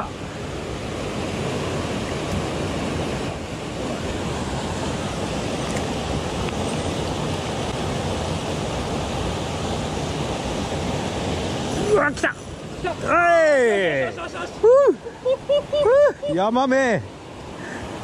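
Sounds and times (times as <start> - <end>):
stream water rushing over rocks: 0.0 - 18.0.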